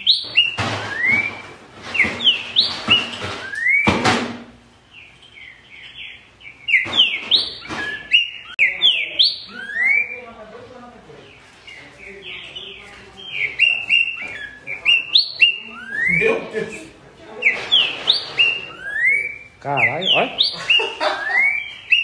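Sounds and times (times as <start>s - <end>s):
bird singing whistled phrases: 0.0s - 3.9s, 5.4s - 10.3s, 13.3s - 16.4s, 17.4s - 22.0s.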